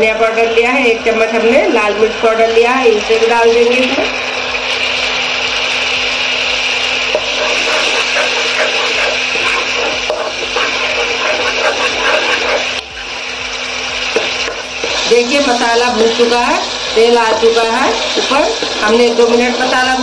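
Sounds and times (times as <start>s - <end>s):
steady hum: 0.0s - 20.0s
masala sizzling in oil: 0.1s - 20.0s
spatula scraping a pan: 7.1s - 12.8s.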